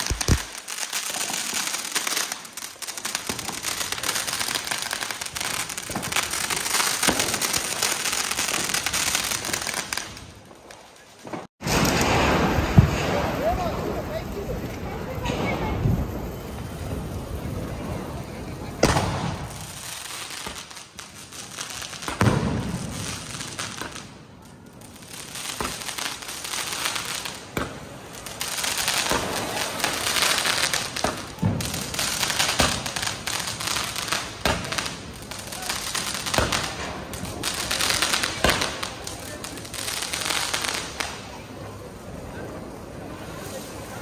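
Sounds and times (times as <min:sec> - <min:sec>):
firecracker bangs: 0:00.0 - 0:02.4, 0:03.1 - 0:10.2, 0:11.2 - 0:14.3, 0:18.6 - 0:21.0, 0:21.9 - 0:24.1, 0:28.6 - 0:39.0
fountain fireworks hissing: 0:00.0 - 0:44.0.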